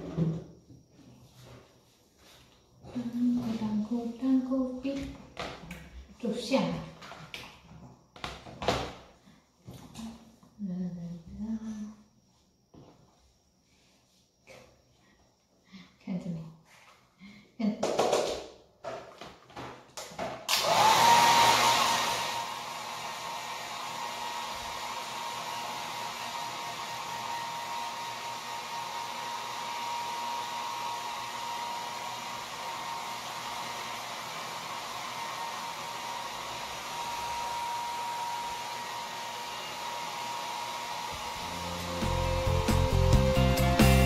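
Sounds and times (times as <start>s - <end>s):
hair dryer blowing: 20.5s - 44.0s.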